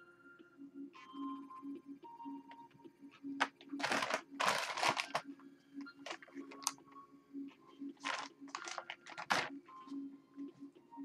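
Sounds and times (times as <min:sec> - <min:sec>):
plastic mailer bag crinkling and tearing: 0:03.4 - 0:05.2, 0:06.1 - 0:06.7, 0:08.0 - 0:09.5.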